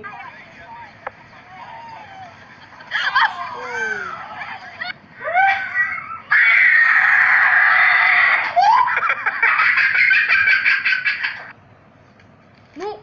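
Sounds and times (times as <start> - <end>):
person screaming: 3.2 - 4.2.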